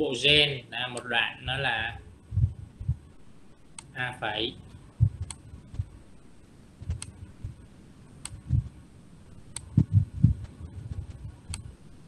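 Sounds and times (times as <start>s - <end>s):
soft low thumps on desk: 5.0s - 6.0s, 9.7s - 11.4s
mouse clicks: 11.5s - 11.7s.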